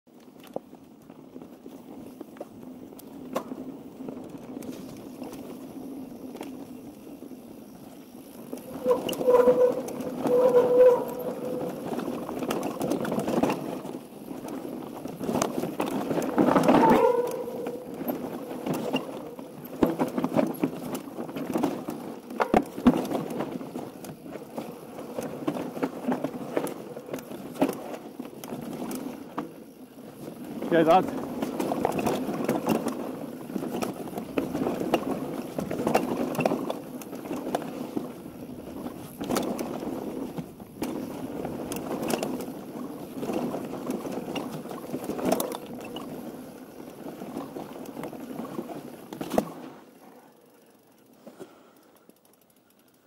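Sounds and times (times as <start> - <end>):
bike tyres on dirt: 0.1 - 53.0
bike rattling and knocking: 0.3 - 49.7
short squeals: 8.7 - 11.8.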